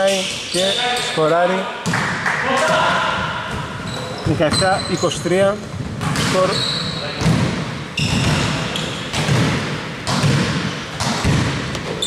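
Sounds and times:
sneaker squeaks: 0.0s - 2.0s, 2.7s - 9.5s, 10.1s - 12.0s
basketball bouncing on court: 5.7s - 6.6s, 7.2s - 12.0s.

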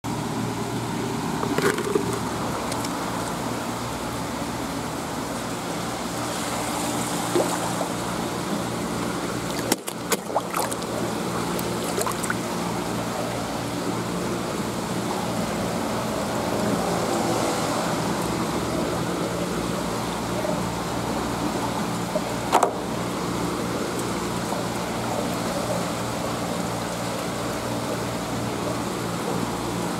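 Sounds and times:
fish tank pump humming: 0.1s - 26.9s
water flowing and trickling: 4.9s - 13.4s.

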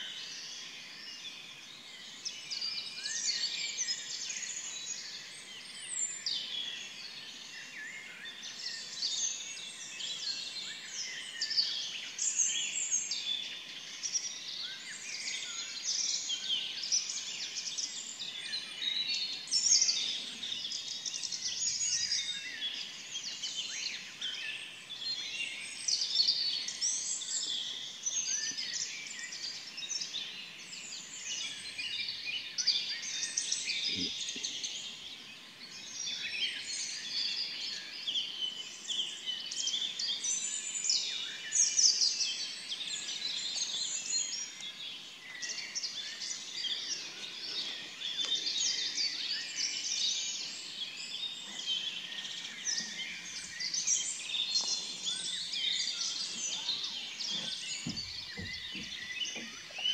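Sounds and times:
songbirds singing: 0.0s - 59.9s
short low knock: 57.3s - 59.5s.

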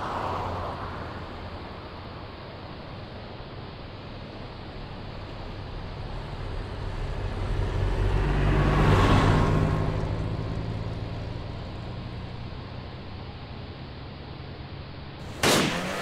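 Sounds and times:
car driving past: 6.0s - 12.6s.

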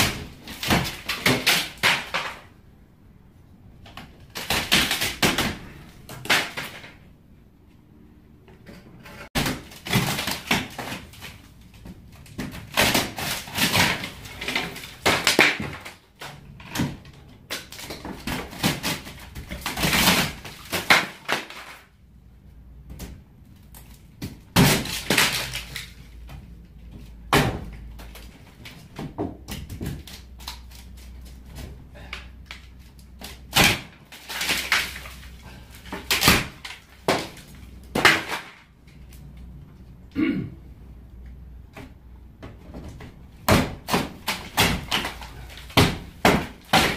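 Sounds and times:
wood cracking and splintering: 0.0s - 2.6s, 3.8s - 7.1s, 9.3s - 22.0s, 22.8s - 39.6s, 42.4s - 46.9s
wood pieces clattering falling: 0.0s - 2.6s, 9.4s - 21.9s, 23.8s - 39.1s.

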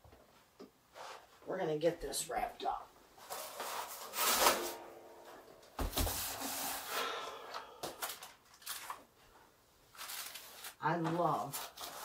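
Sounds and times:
plastic film scraping off roll: 3.2s - 4.9s, 9.9s - 10.8s
box thud on steel table: 5.7s - 6.4s.

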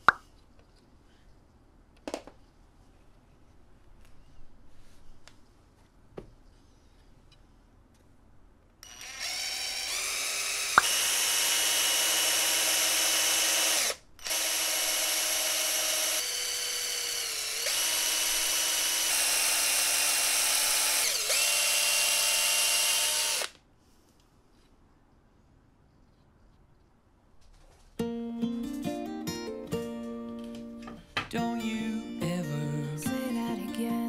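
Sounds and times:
cordless drill boring into wood: 8.8s - 23.6s.

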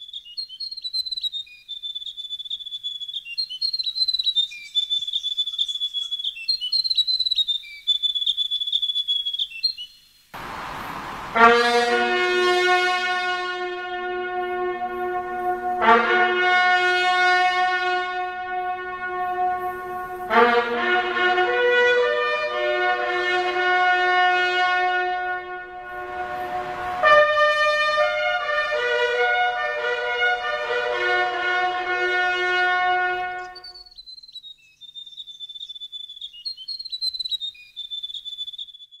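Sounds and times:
brass bugle call: 10.4s - 33.8s.

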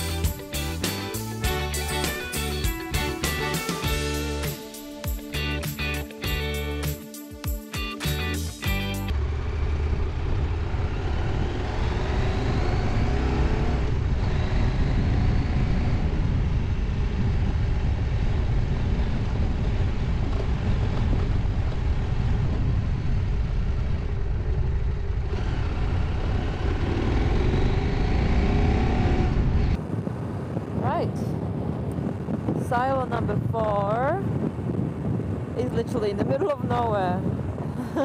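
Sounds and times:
motorcycle engine accelerating: 8.1s - 30.8s
wind rumble on microphone: 9.1s - 38.0s.

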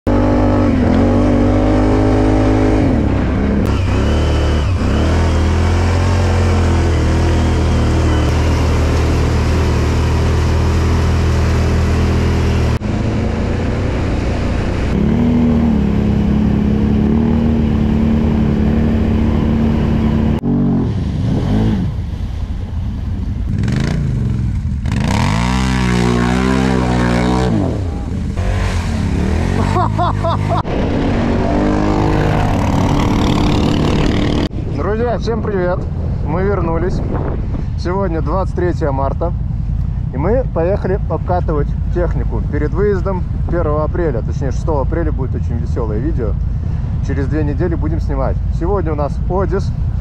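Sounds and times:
quad bike engines revving: 0.1s - 22.2s, 23.1s - 34.7s.

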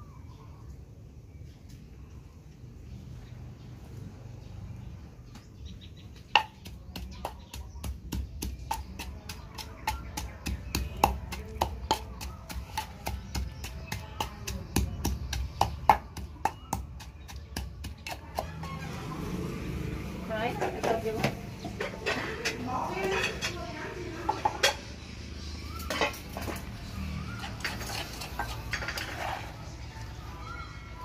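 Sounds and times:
wooden pestle pounding in mortar: 6.2s - 19.1s.

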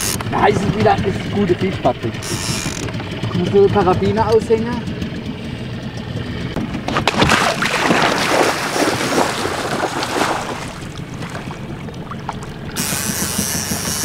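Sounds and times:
feet splashing through water: 6.9s - 13.3s.

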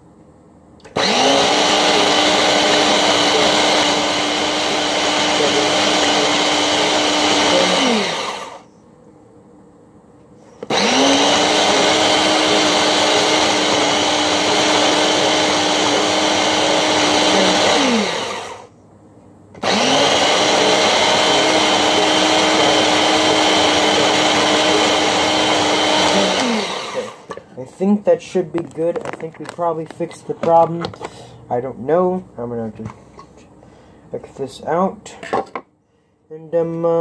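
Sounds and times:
food processor motor running: 0.9s - 8.6s, 10.6s - 18.7s, 19.6s - 27.3s.

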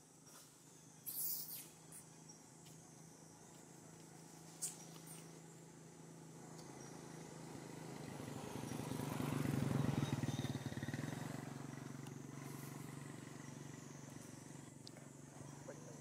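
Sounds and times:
vehicle engine passing by: 5.2s - 16.0s.

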